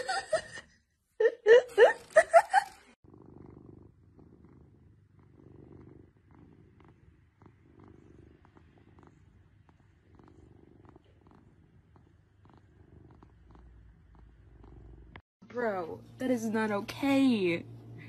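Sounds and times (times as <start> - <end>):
cat purring faintly: 2.6 - 15.2.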